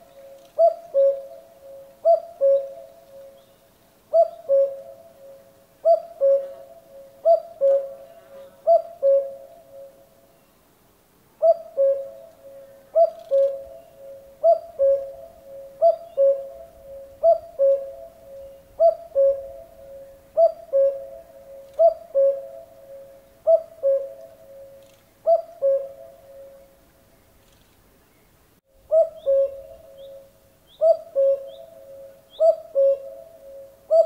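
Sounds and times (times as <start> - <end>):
cuckoo calling: 0.0 - 10.0, 11.4 - 26.8, 28.8 - 34.0.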